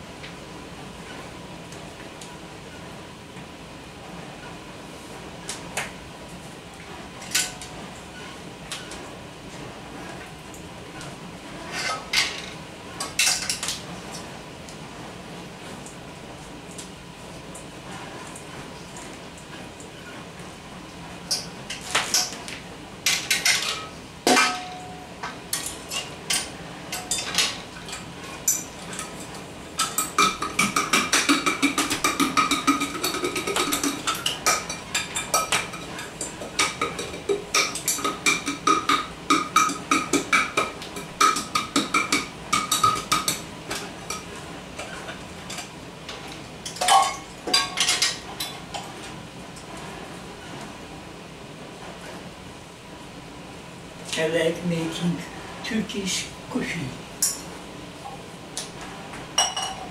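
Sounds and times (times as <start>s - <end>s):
metal pots and pans clanking: 23.1s - 45.7s, 46.6s - 48.9s, 59.4s - 59.9s.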